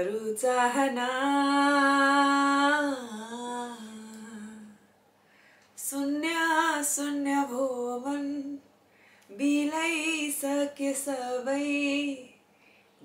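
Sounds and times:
person singing without words: 0.0 - 4.8, 9.3 - 12.4.

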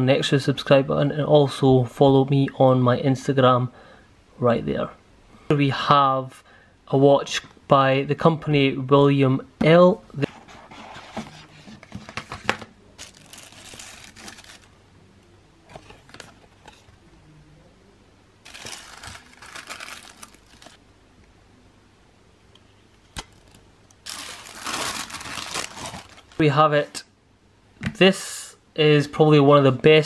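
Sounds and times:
paper packaging rustling: 10.3 - 14.8, 15.7 - 16.9, 18.4 - 20.8, 23.2 - 26.6.

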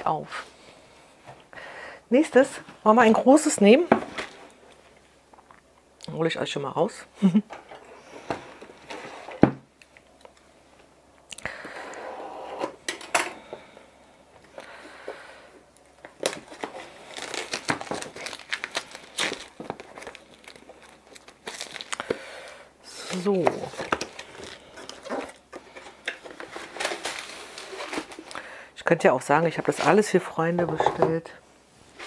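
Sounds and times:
plastic wrap crinkling: 16.0 - 28.4.

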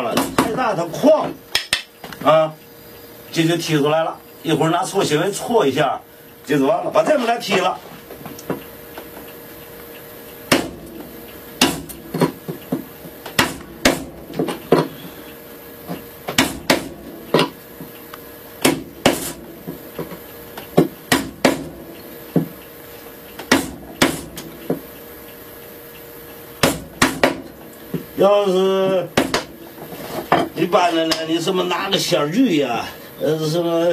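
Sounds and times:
mallet striking chisel into wood: 10.5 - 10.8, 11.6 - 12.4, 13.4 - 14.1, 16.3 - 17.5, 18.6 - 19.4, 20.8 - 21.7, 23.4 - 24.8, 26.6 - 27.4, 29.2 - 29.5.

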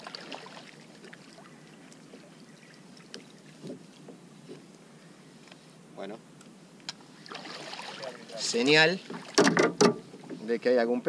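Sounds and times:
water sloshing and splashing: 0.0 - 4.2, 7.1 - 10.5.

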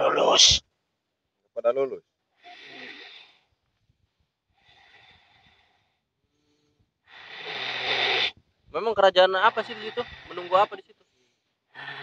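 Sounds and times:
person breathing out hard: 11.7 - 12.0.

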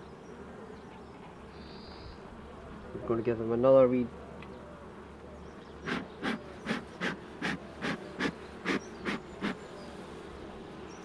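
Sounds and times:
honeybees humming: 0.0 - 11.0
bellows smoker puffing: 5.8 - 9.6.

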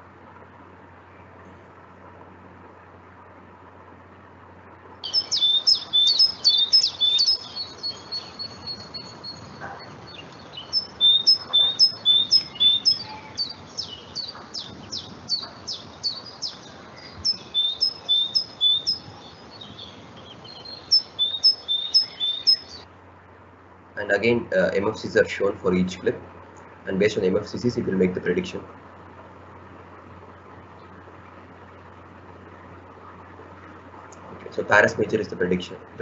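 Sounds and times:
faint steady hiss: 0.0 - 36.0
great tit singing: 5.0 - 22.8.

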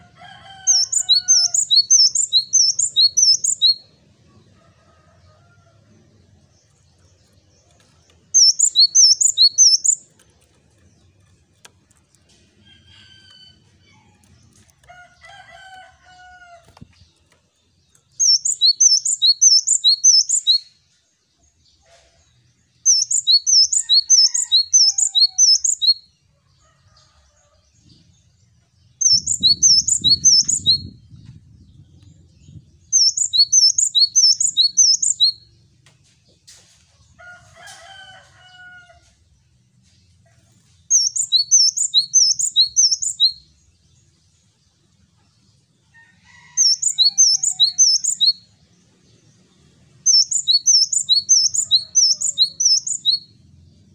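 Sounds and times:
lower bird calls: 0.0 - 3.9, 8.3 - 10.1, 29.0 - 35.5, 40.9 - 43.4, 46.4 - 48.5, 50.1 - 53.9.

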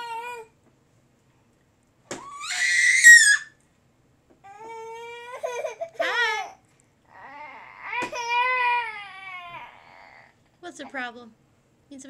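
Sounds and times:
baby crying: 0.0 - 0.5, 2.2 - 3.5, 4.5 - 10.4.

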